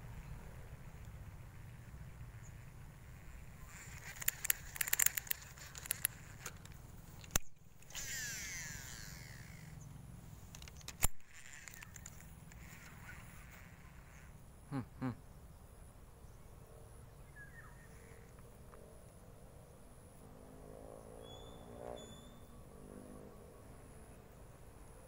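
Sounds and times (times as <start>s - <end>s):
fishing line whirring off spool: 0.6s - 14.4s
fishing tackle rattling clicks: 3.7s - 9.7s, 10.5s - 13.0s.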